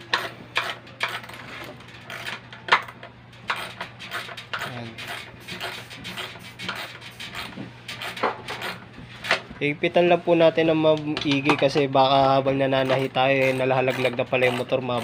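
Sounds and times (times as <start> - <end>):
wrench clicking on nuts: 2.0 - 8.8, 12.8 - 15.0.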